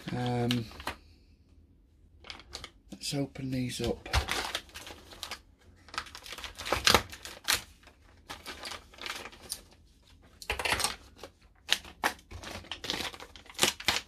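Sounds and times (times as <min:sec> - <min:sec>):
packaging crinkling and tearing: 0:03.9 - 0:14.0.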